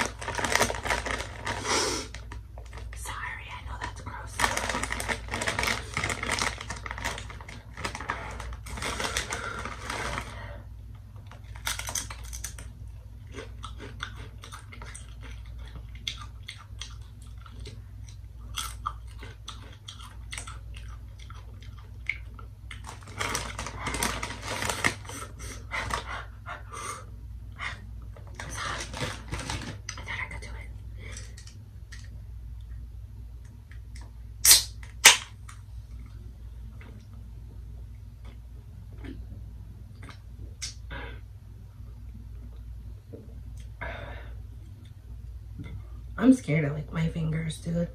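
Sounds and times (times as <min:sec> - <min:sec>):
crunching tortilla chips: 0:00.0 - 0:03.0, 0:03.7 - 0:10.5, 0:11.2 - 0:26.1, 0:28.3 - 0:30.1, 0:34.0 - 0:35.6
chip bag crinkling: 0:00.0 - 0:10.6, 0:11.2 - 0:17.8, 0:18.4 - 0:26.1, 0:28.2 - 0:30.2.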